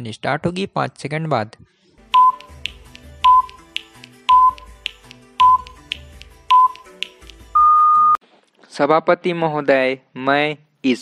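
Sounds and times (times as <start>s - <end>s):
longer higher beep: 2.2s - 2.5s, 4.3s - 4.6s, 7.6s - 8.2s
short countdown beeps: 2.2s - 2.5s, 3.2s - 3.6s, 4.3s - 4.7s, 5.4s - 5.8s, 6.5s - 6.8s, 7.6s - 8.2s
ticks: 2.2s - 7.4s.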